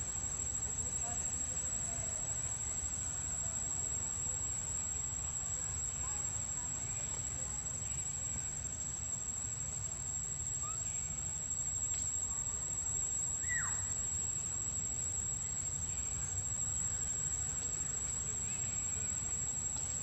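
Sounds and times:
insects droning: 0.0s - 20.0s.

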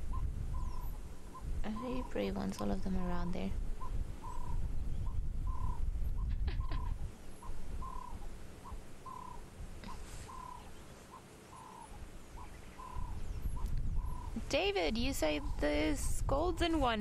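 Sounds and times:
dove cooing: 0.0s - 2.3s, 3.8s - 4.6s, 5.5s - 14.6s
small birds chirping: 0.0s - 17.0s.

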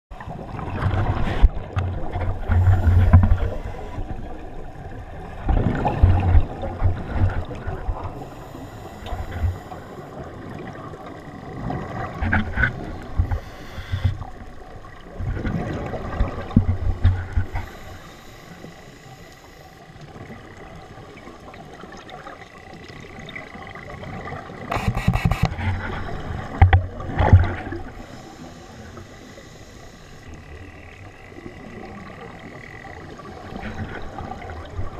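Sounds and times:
bubbles gurgling underwater: 0.1s - 8.2s, 10.1s - 13.4s, 14.1s - 17.6s, 20.1s - 28.0s
diver inhaling through regulator: 8.2s - 10.1s, 13.2s - 14.2s, 17.4s - 19.8s, 27.9s - 30.3s.

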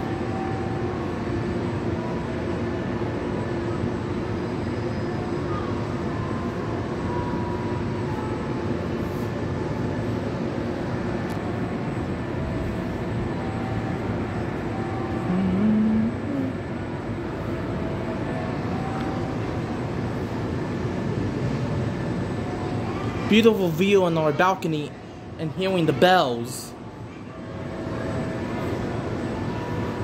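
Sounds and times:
city traffic rumble: 0.0s - 30.0s
rising tone: 15.1s - 16.6s.

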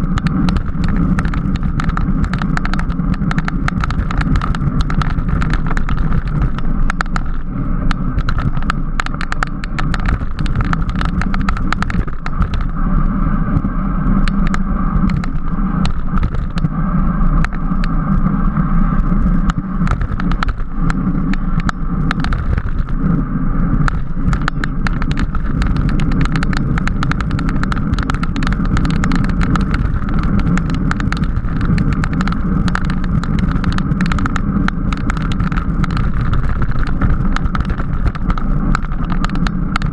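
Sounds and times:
bicycle clicks and rattles: 0.0s - 39.9s
bicycle tyre and road noise: 0.0s - 39.9s.

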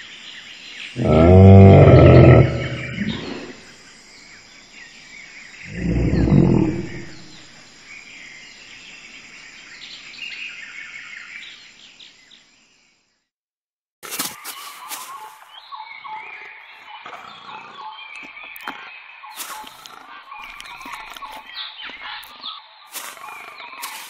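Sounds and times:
insects chirping: 0.0s - 13.2s, 14.2s - 24.0s
birds chirping: 0.1s - 11.6s, 14.4s - 24.0s
deep dinosaur roar: 1.0s - 3.6s, 5.7s - 7.5s.

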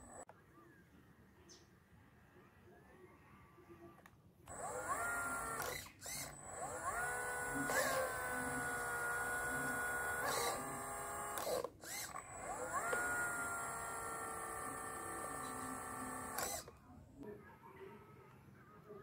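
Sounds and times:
small electric motor whining: 0.0s - 0.2s, 4.5s - 16.7s.

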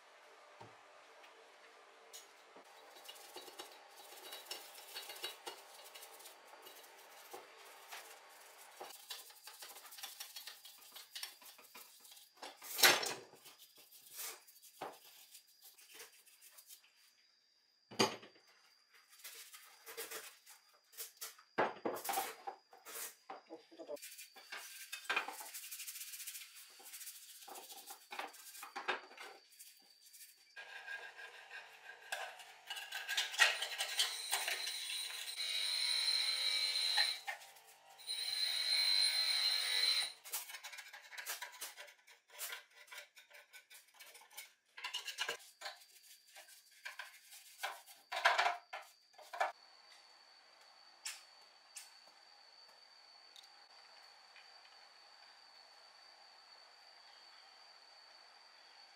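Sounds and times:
brush scrubbing plastic parts: 2.7s - 17.0s, 24.0s - 34.6s, 40.3s - 49.5s.

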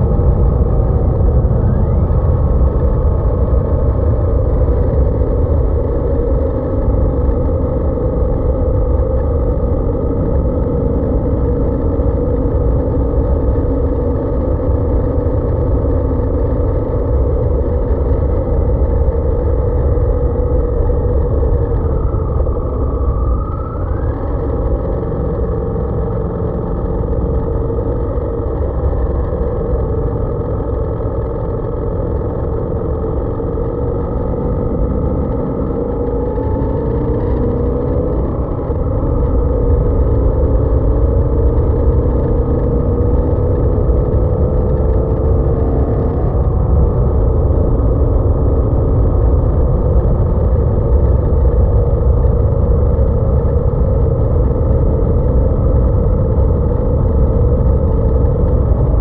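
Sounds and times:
constant low rumble: 0.0s - 59.0s
motorcycle engine running: 0.0s - 59.0s.

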